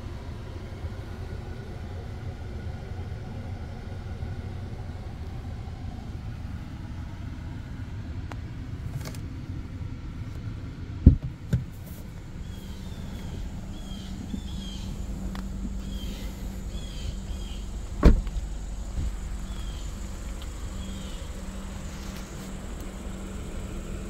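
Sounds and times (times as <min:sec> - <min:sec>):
car engine rumbling: 0:00.0 - 0:24.0
heavy thumps: 0:11.0 - 0:11.8, 0:17.8 - 0:19.4.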